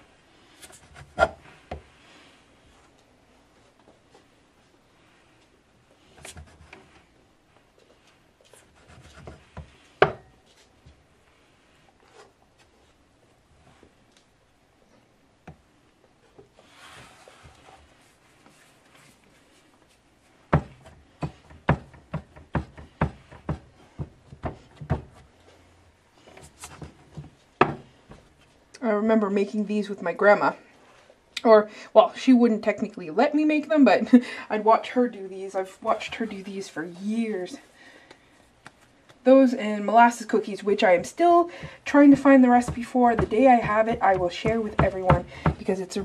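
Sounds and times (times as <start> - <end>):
rubbing of dough and flour: 16.5 - 27.4, 40.9 - 46.0.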